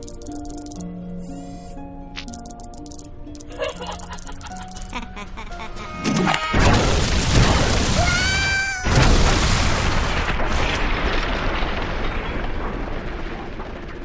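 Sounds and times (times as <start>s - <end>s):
sci-fi blaster explosions: 6.6s - 14.0s.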